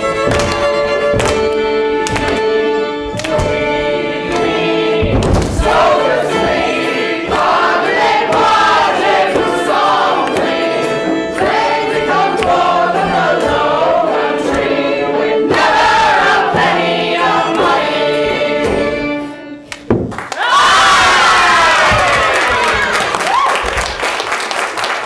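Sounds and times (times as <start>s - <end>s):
group singing in chorus: 1.4s - 19.7s.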